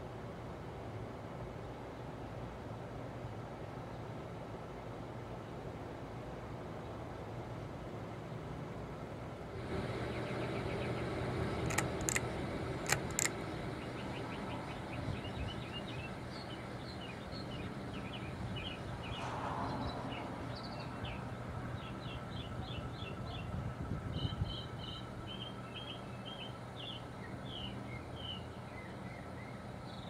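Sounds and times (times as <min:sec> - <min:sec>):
ceiling fan humming: 0:00.0 - 0:30.0
small birds chirping: 0:09.9 - 0:23.6, 0:24.2 - 0:30.0
sharp clicks: 0:11.6 - 0:13.4.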